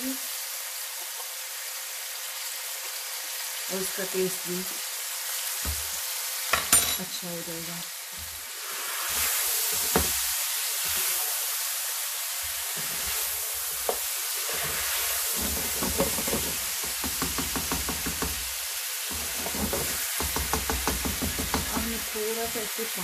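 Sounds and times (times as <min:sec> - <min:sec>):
meat sizzling in hot oil: 0:00.0 - 0:23.0
spatula clattering against pan: 0:19.3 - 0:21.9.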